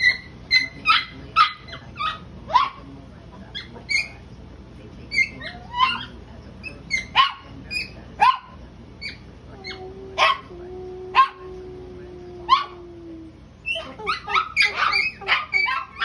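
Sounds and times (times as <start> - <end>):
small dogs yapping: 0.0 - 2.9, 5.1 - 10.5, 12.4 - 12.9, 13.6 - 16.0.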